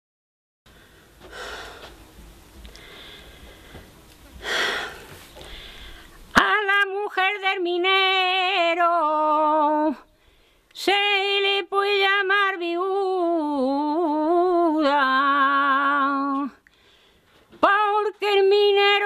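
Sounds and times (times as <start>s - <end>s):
woman singing unaccompanied: 6.3s - 10.1s, 10.7s - 16.7s, 17.5s - 19.0s.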